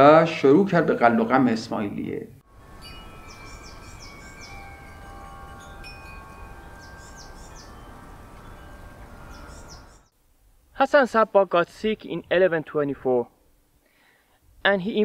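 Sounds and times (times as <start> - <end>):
chimes ringing softly: 2.6 - 10.1.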